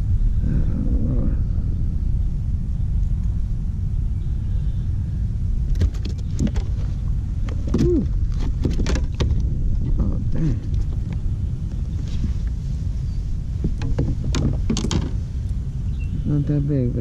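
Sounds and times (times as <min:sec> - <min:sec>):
wind buffeting microphone: 0:00.0 - 0:17.0
clicks and knocks of handling: 0:07.5 - 0:09.5, 0:13.7 - 0:15.2.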